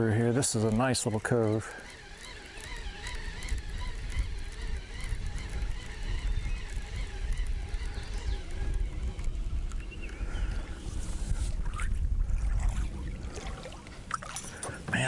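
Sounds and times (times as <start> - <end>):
faint bird calls: 0.2 - 12.0
wind buffeting microphone: 1.9 - 15.0.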